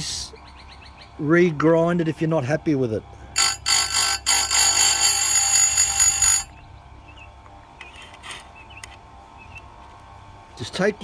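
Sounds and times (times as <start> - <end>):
faint steady hum: 0.0 - 11.0
grinder high-pitched screech: 3.4 - 6.5.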